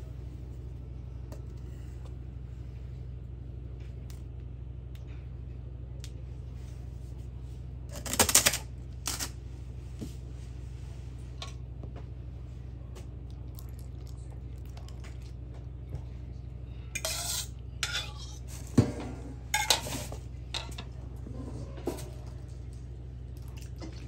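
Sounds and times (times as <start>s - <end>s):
steady low hum: 0.0s - 24.0s
dishes and utensils clattering: 17.0s - 20.9s.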